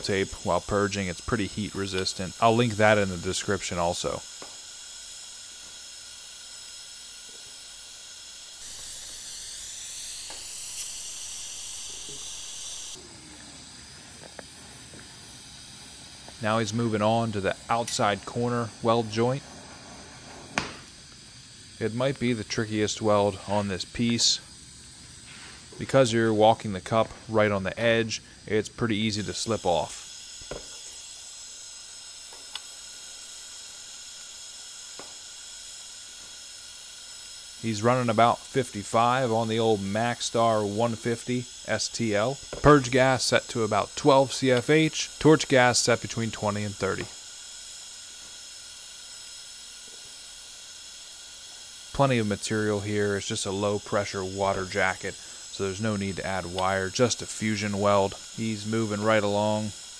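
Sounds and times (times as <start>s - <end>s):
faint high whining tones: 0.0s - 34.3s
welding arc hissing: 0.0s - 59.9s.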